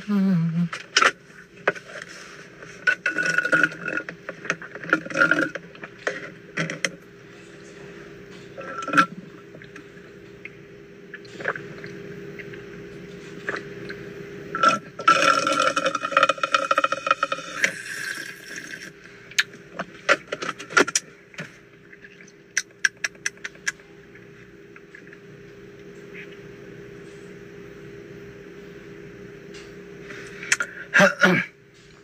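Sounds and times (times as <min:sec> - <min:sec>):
steady hum: 0:00.0 - 0:32.0
slurping through a straw: 0:02.8 - 0:04.1, 0:14.6 - 0:18.9.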